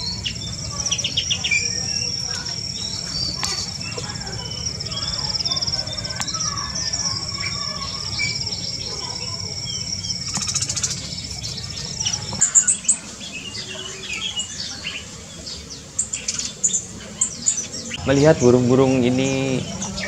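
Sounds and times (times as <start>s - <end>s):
birds chirping and twittering: 0.0s - 20.0s
steady high trill: 18.0s - 20.0s.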